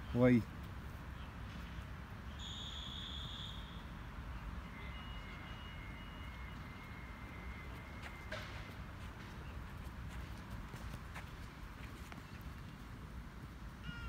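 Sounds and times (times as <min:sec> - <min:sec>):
faint steady tone: 0:01.2 - 0:09.6.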